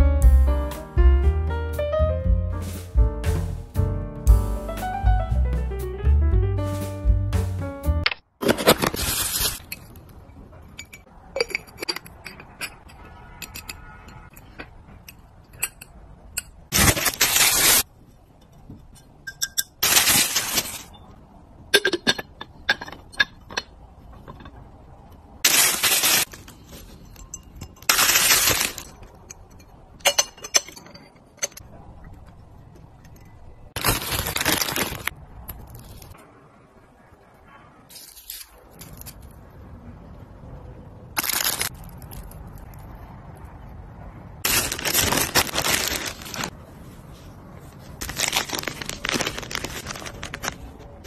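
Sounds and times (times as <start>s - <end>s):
packaging crinkling: 8.4s - 9.7s, 16.7s - 17.9s, 19.8s - 20.9s, 25.4s - 26.8s, 33.8s - 36.1s, 41.2s - 42.2s, 44.4s - 46.5s, 48.0s - 50.9s
glass and ceramic clinking: 9.7s - 16.6s, 18.8s - 19.8s, 21.7s - 24.6s, 26.9s - 27.9s, 28.6s - 31.6s.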